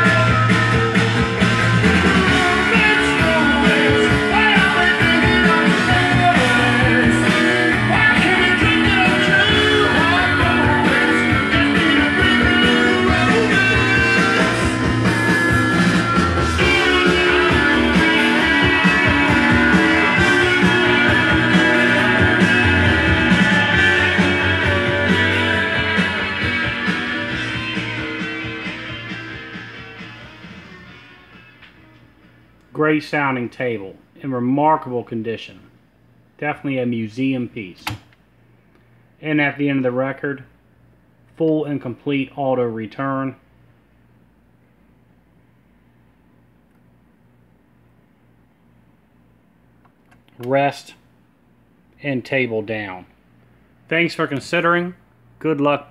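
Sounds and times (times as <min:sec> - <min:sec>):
rock song with guitar: 0:00.0 - 0:32.4.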